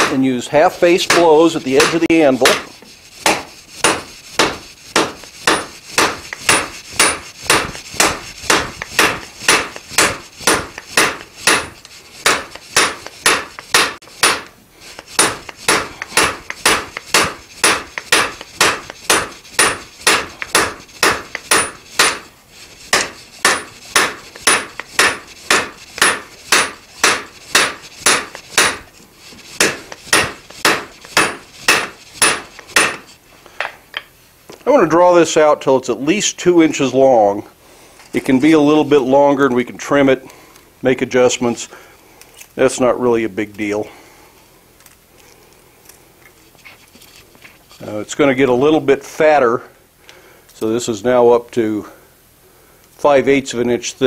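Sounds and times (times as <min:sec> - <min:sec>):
hammer striking steel on anvil: 0:00.0 - 0:00.3, 0:00.9 - 0:22.3, 0:22.9 - 0:28.9, 0:29.6 - 0:33.1.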